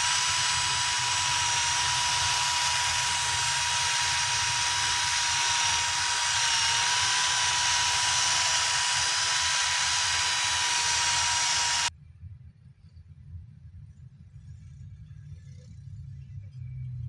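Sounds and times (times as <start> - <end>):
electric drill whining: 0.0 - 11.9.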